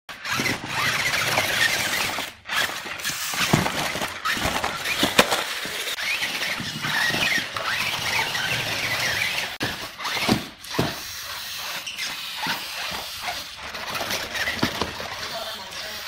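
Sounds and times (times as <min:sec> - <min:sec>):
small electric motor whining: 0:00.1 - 0:16.0.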